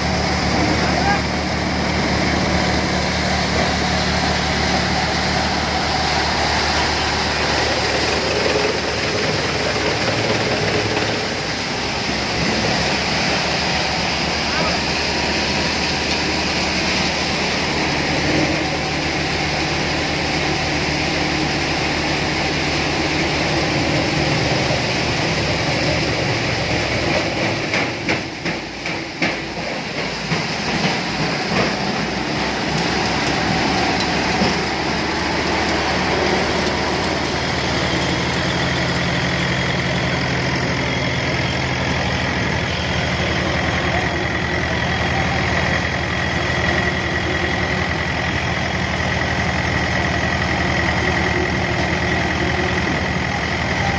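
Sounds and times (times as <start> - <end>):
threshing machine working: 0.0 - 53.9
tractor engine running: 0.0 - 53.9.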